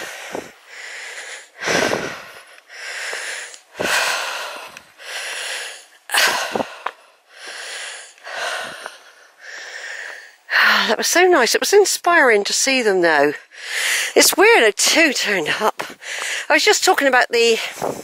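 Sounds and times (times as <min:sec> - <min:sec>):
heavy wheezy breathing: 0:00.0 - 0:10.7, 0:13.4 - 0:14.2.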